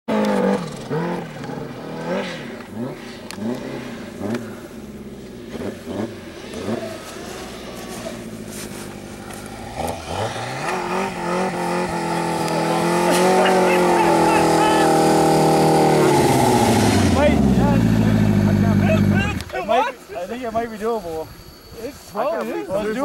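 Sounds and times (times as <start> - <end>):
snowmobile engine revving: 0.1 - 20.0.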